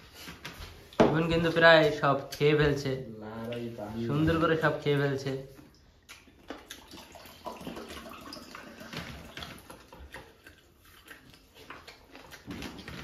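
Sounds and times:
eating mouthfuls: 5.6 - 13.0.

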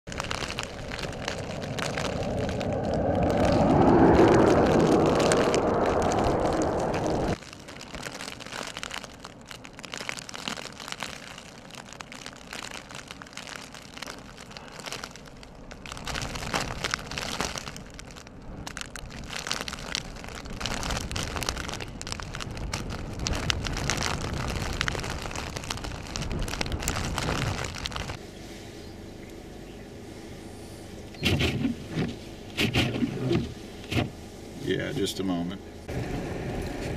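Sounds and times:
blizzard wind buffeting microphone: 0.1 - 7.4, 18.4 - 28.2.

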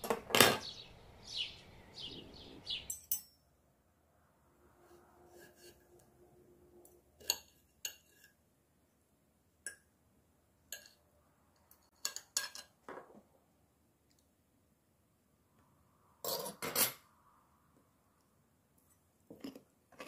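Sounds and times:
cutlery clinking on a ceramic plate: 2.9 - 3.4, 7.2 - 8.4, 10.7 - 11.0, 11.7 - 13.0, 16.2 - 17.0.

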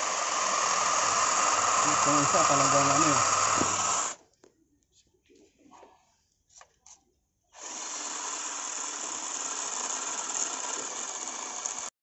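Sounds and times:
cordless drill running: 0.0 - 4.2, 7.6 - 11.9.

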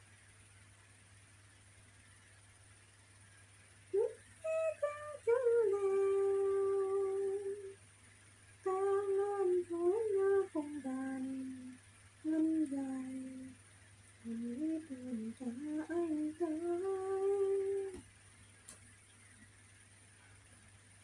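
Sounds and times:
woman humming: 4.0 - 7.8, 8.7 - 13.6, 14.2 - 18.0.

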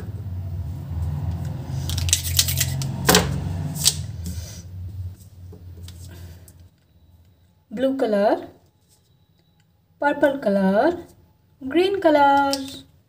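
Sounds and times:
low steady rumble: 0.0 - 7.6.

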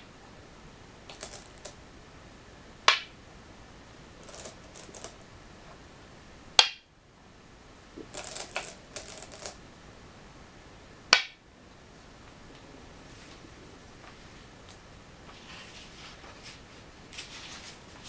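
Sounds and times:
go stone clicking on board: 1.1 - 1.8, 2.9 - 3.2, 4.2 - 5.2, 6.6 - 6.9, 8.0 - 9.6, 11.1 - 11.4
stones clattering in a bowl: 1.1 - 1.8, 4.2 - 5.2, 8.0 - 9.6.

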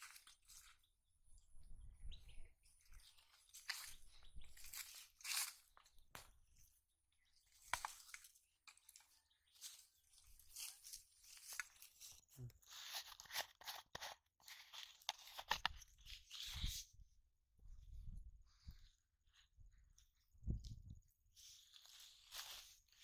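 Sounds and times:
dry leaves and plastic crackling: 0.0 - 0.9, 2.6 - 16.8, 21.4 - 23.0.

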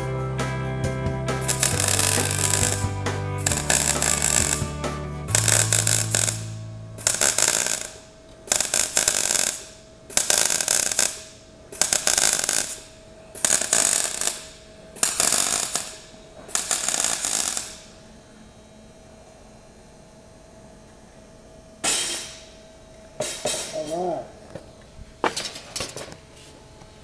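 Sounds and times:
welder arc bursts: 1.4 - 18.0.

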